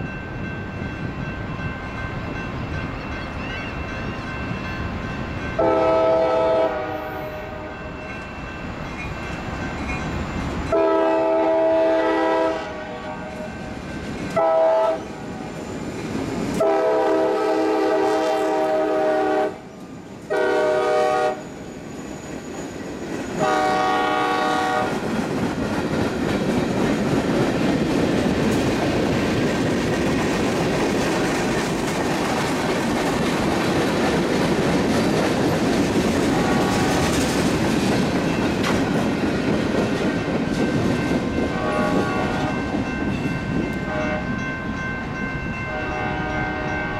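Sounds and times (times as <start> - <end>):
train rumble and wheel clickety-clack: 0.0 - 46.9
locomotive air horn blasts: 5.6 - 7.9, 10.7 - 13.6, 14.4 - 15.0, 16.6 - 19.6, 20.3 - 21.4, 23.4 - 25.0, 36.3 - 37.1, 41.5 - 42.6, 43.8 - 44.3, 45.7 - 46.9.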